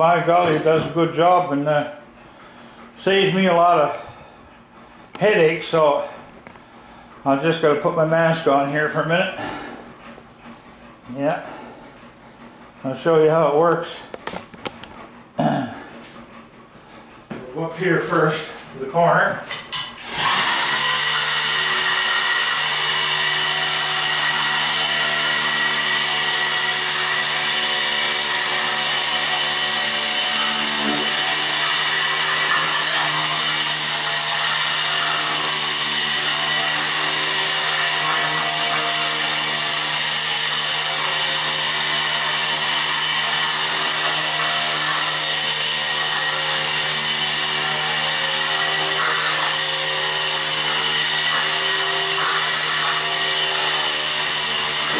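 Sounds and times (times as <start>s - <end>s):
blade scraping floor: 0.0s - 1.4s, 19.8s - 54.9s
floor scraper motor hum: 0.0s - 4.4s, 19.8s - 54.9s.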